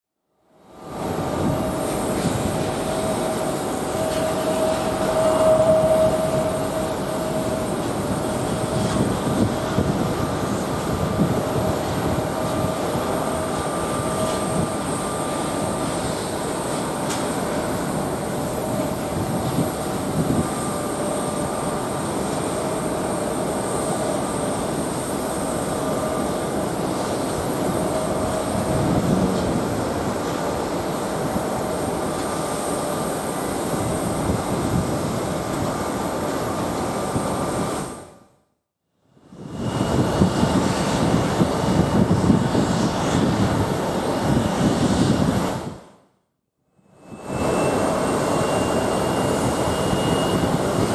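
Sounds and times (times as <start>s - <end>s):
jet engines whining: 0.6s - 38.1s, 39.2s - 45.8s, 46.9s - 50.9s.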